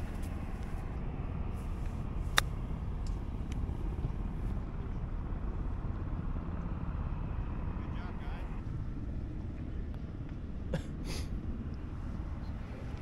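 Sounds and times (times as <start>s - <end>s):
steady low rumble: 0.0s - 13.0s
golf club striking ball: 2.3s - 3.6s.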